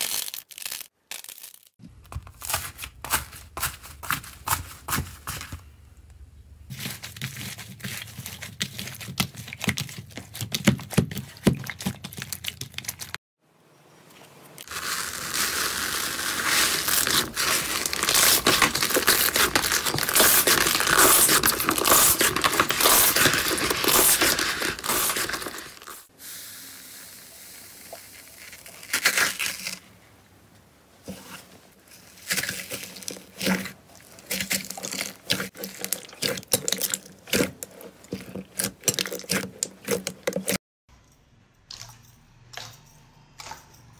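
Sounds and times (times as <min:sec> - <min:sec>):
slime stretching with crackling tear: 0:00.0 - 0:02.6, 0:14.6 - 0:26.1, 0:28.1 - 0:29.8
foam slime crackling and popping: 0:14.6 - 0:26.1, 0:27.7 - 0:29.8.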